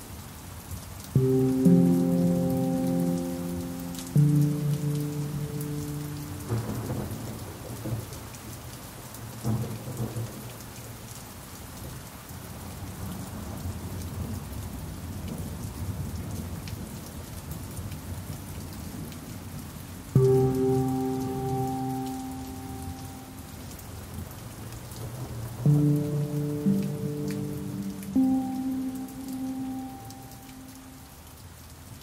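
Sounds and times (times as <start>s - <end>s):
steady rain falling: 0.0s - 32.0s
low rumbles of thunder: 5.8s - 11.1s.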